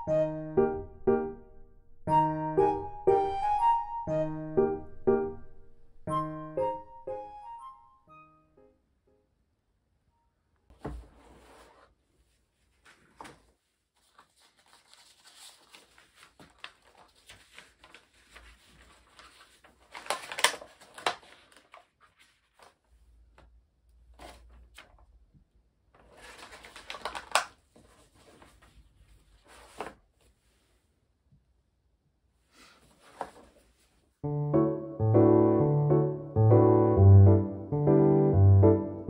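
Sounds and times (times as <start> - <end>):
paper and plastic crinkling: 12.7 - 23.4, 24.1 - 25.1, 26.0 - 30.5.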